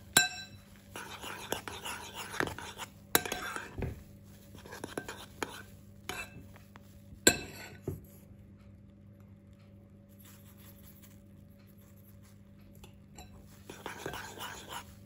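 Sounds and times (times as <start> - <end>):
faint steady hum: 0.0 - 15.0
metal spoon clinking in bowl: 0.1 - 0.6, 3.2 - 3.7.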